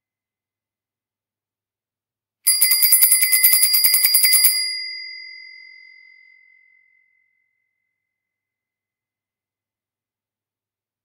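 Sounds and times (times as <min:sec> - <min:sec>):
bicycle bell ringing rapidly: 0:02.5 - 0:05.2.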